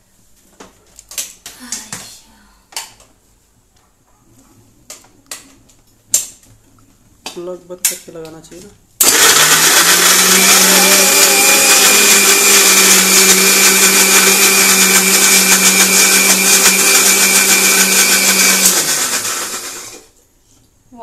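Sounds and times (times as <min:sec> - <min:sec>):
mixer grinder motor whining: 0:09.0 - 0:20.1.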